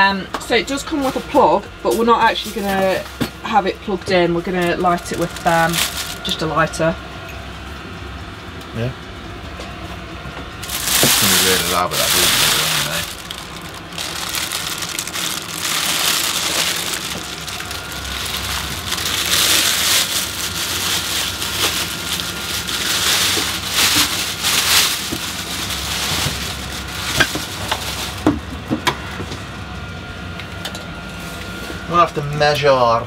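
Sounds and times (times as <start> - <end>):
plastic wrapping crinkling: 4.7 - 6.4, 10.6 - 28.5.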